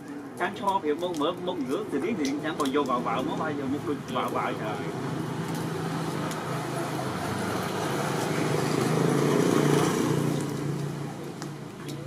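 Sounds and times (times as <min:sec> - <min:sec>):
vehicle engine passing by: 0:04.7 - 0:11.7.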